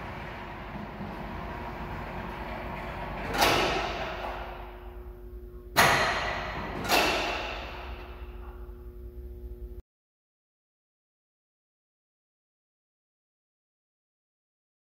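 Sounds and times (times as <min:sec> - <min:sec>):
loud ringing clunks: 0:00.0 - 0:08.8
overhead crane running rumble: 0:00.0 - 0:09.8.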